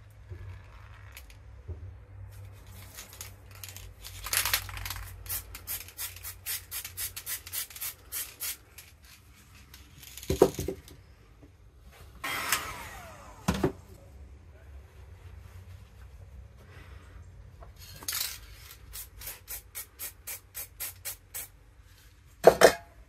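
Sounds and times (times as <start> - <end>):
spray paint can hissing: 4.8 - 8.9, 18.7 - 21.6.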